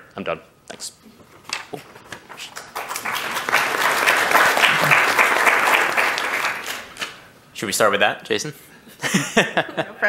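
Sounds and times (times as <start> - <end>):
audience applauding: 2.3 - 7.0.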